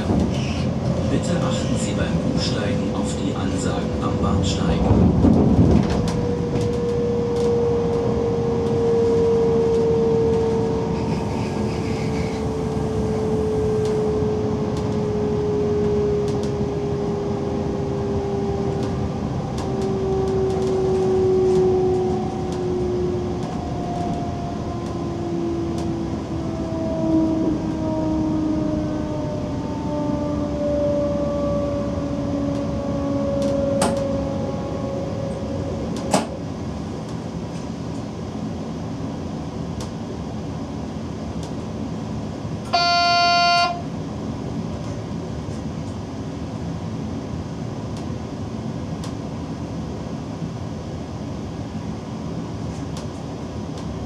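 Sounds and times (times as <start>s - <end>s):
train running rumble: 0.0s - 54.0s
traction drive whine falling in pitch: 5.9s - 36.4s.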